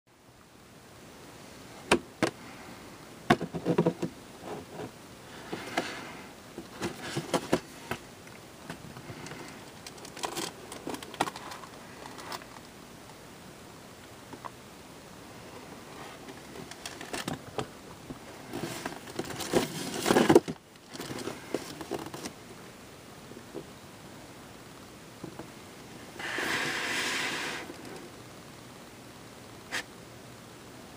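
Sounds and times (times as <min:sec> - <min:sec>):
cardboard rustling and scraping: 0:03.3 - 0:08.0, 0:18.4 - 0:22.4, 0:26.1 - 0:28.1.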